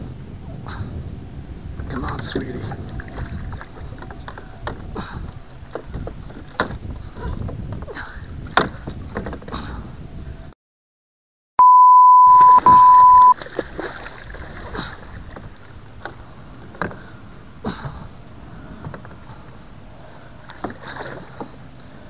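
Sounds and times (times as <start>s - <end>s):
water splashing: 1.8s - 7.1s, 12.3s - 18.0s, 20.0s - 22.0s
loud steady beep tone: 11.6s - 13.4s.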